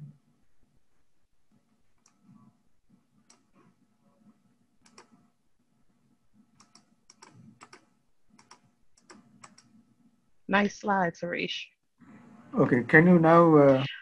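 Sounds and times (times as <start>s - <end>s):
computer keyboard clicks: 4.8s - 5.2s, 6.6s - 9.7s.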